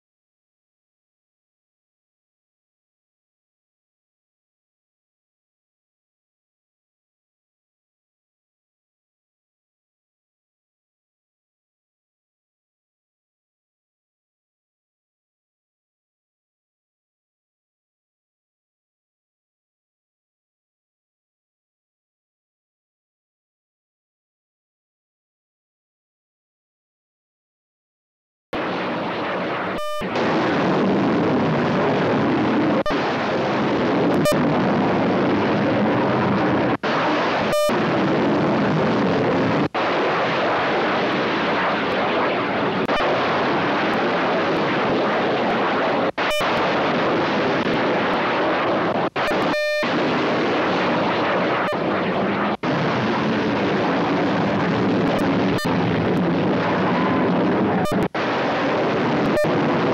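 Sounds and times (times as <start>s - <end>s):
missile launch rocket roar: 28.6s - 59.9s.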